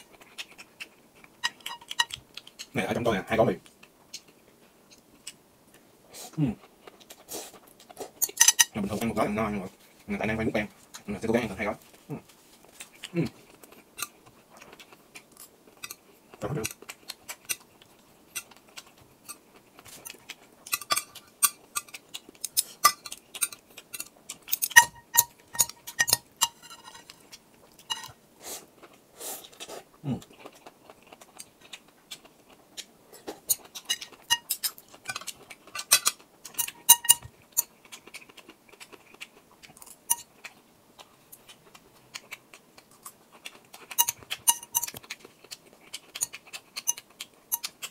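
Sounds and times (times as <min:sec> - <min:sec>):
chopsticks clinking against glass bowls: 0:22.8 - 0:27.2, 0:27.9 - 0:28.1, 0:36.6 - 0:37.7, 0:44.0 - 0:45.0.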